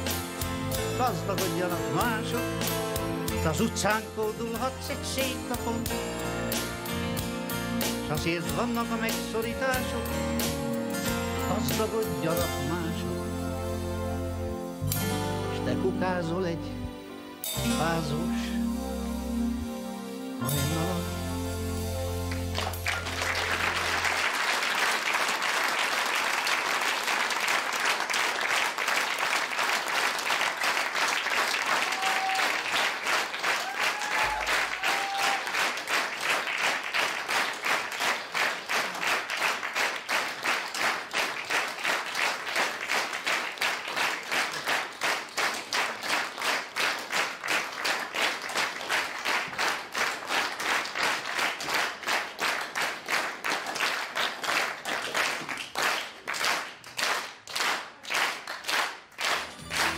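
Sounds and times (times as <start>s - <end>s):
audience applauding: 22.3s - 59.9s.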